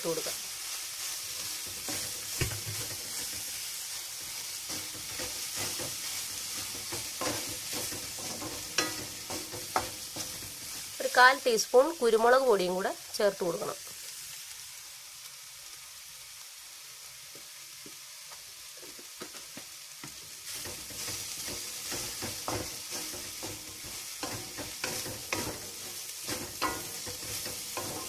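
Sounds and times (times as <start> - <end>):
food sizzling in oil: 0.0 - 28.0
spatula scraping a pan: 0.5 - 11.0, 20.4 - 28.0.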